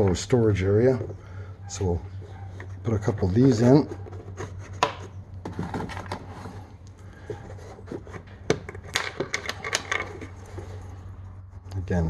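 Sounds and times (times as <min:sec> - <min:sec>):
plastic trim rubbing: 0:02.2 - 0:10.7.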